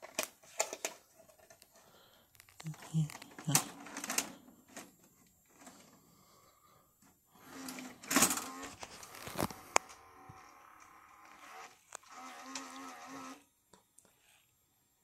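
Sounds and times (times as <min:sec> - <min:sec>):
small electric motor buzzing: 0:09.8 - 0:13.4.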